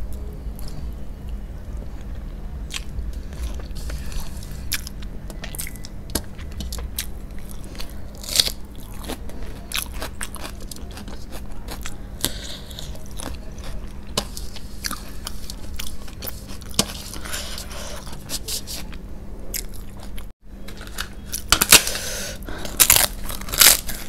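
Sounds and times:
person chewing food: 2.0s - 24.0s
sharp clicks and crunches: 22.6s - 24.0s.

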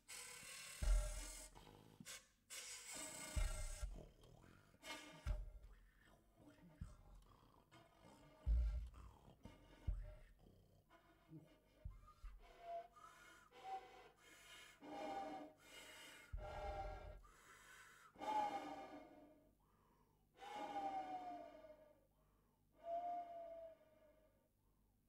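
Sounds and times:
breathy soprano saxophone: 0.0s - 7.1s.

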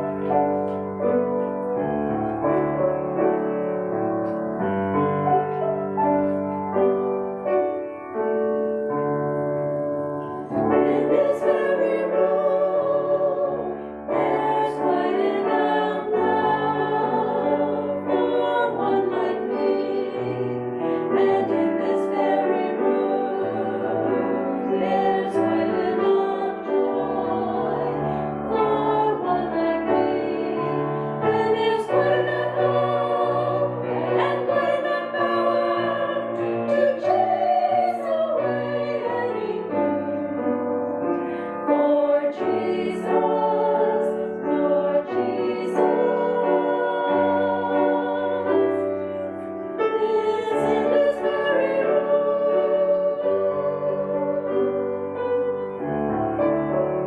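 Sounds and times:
women singing together: 10.3s - 40.4s, 41.2s - 55.1s.

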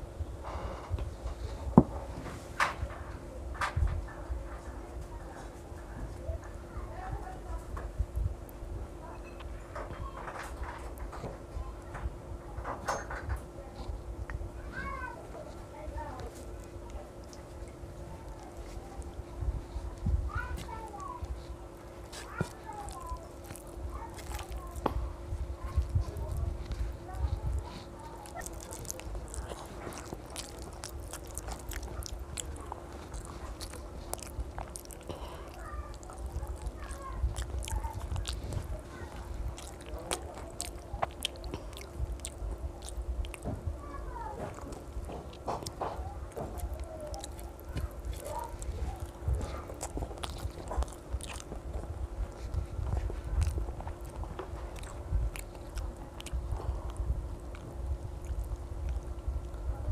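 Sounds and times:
faint steady hum: 0.0s - 59.9s
child chewing with mouth clicks: 0.4s - 59.9s
fingers mixing food on plate: 13.7s - 59.7s.

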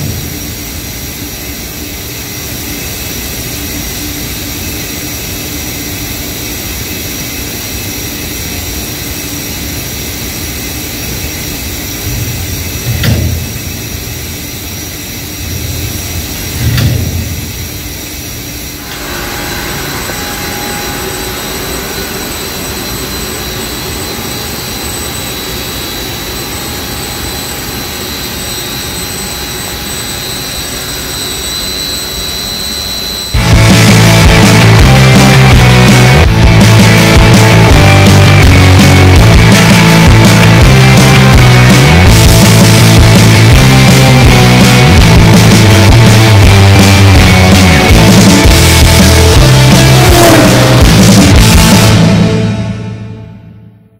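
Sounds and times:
faint steady whines: 0.0s - 34.7s
ventilation roar: 0.0s - 53.2s.

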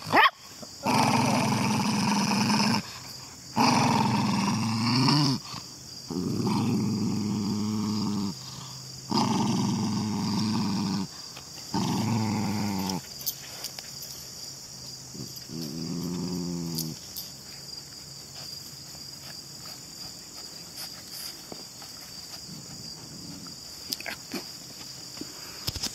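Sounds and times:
crickets chirping: 0.0s - 25.9s
small dog growling: 0.8s - 13.1s, 15.1s - 17.0s, 22.5s - 24.4s.

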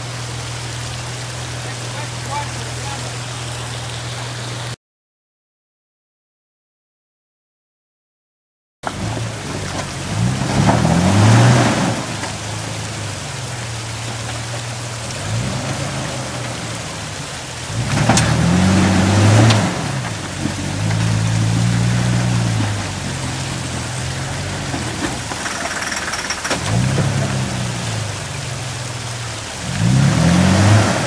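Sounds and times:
engine revving: 8.8s - 31.0s.

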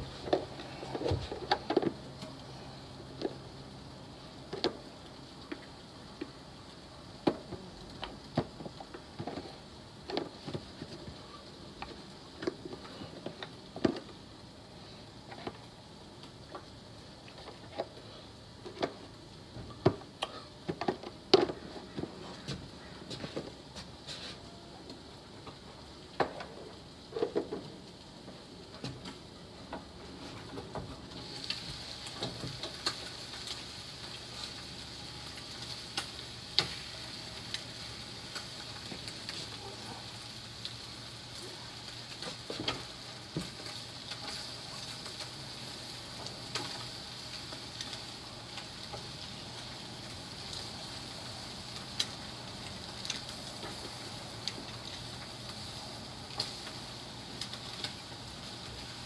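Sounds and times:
frying sizzle in a pan: 0.0s - 59.0s.

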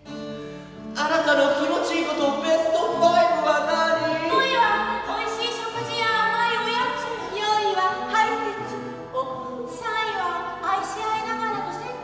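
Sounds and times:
several voices singing: 2.9s - 5.4s.

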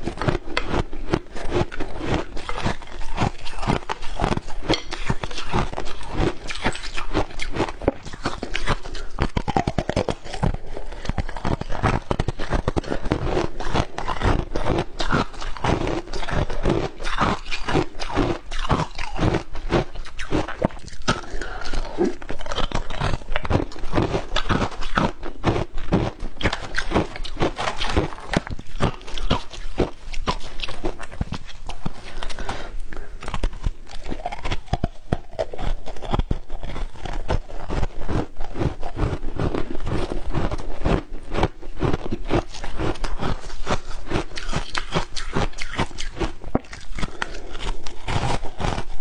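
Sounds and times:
ice crunching being chewed: 0.0s - 49.0s.

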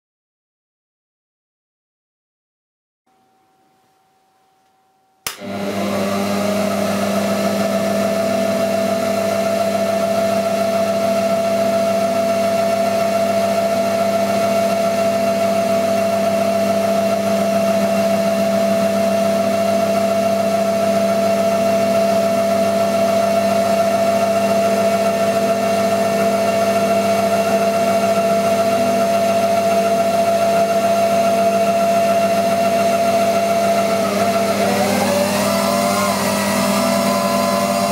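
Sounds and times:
motor switch click: 5.3s - 5.5s
milling machine motor whining: 25.7s - 37.9s.

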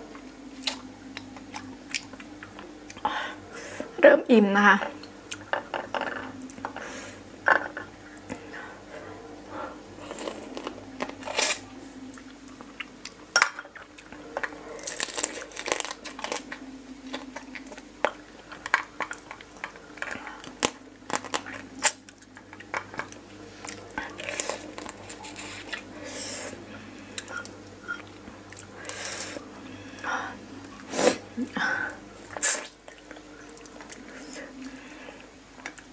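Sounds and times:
crab shell cracking: 14.8s - 23.2s.

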